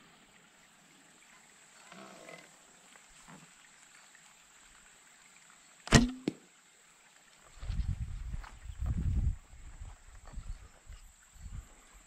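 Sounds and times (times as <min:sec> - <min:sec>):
bowstring snap and twang: 0:05.8 - 0:06.5.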